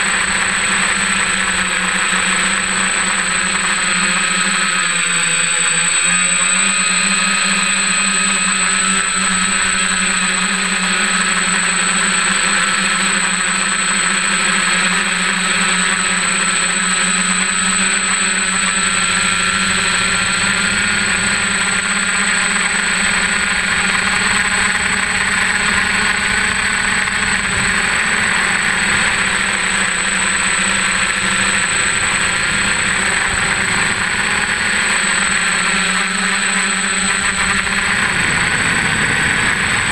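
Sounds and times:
drone motors whirring: 15.7s - 39.9s.

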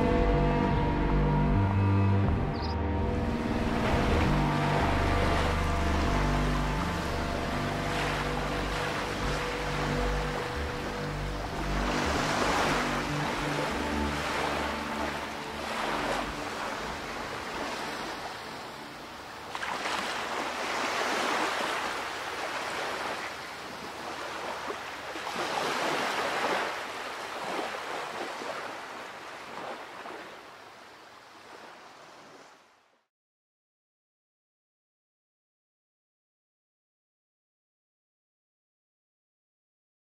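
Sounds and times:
ocean surf breaking: 3.2s - 30.4s.

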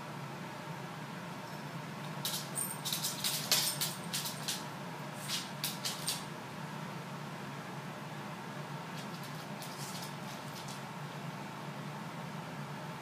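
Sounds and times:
claws clicking on hardwood floor: 2.1s - 6.3s, 9.0s - 10.8s.

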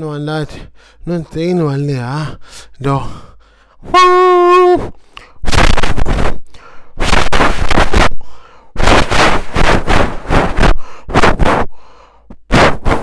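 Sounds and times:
man imitating train horn hoot: 3.8s - 5.0s
man making breathy hisses: 4.8s - 13.0s.

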